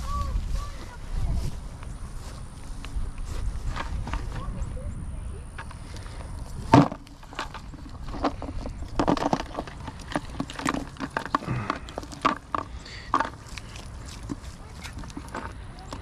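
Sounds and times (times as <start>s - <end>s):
net weights clicking and rattling: 6.7s - 16.0s.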